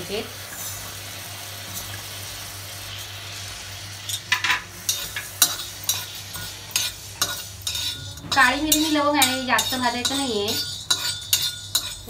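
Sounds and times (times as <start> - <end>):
metal spatula scraping: 4.1 - 12.0.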